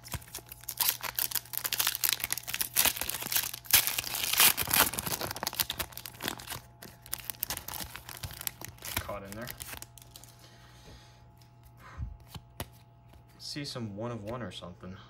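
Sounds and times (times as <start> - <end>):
foil wrapper tearing and crinkling: 0.0 - 10.3.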